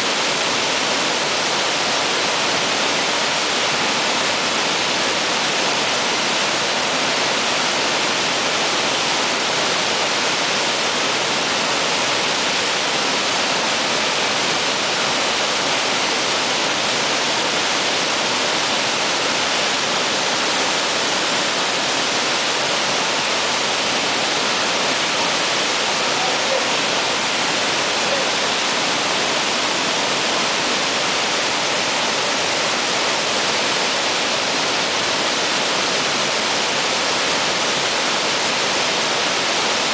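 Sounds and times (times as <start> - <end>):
waterfall rushing: 0.0 - 39.9.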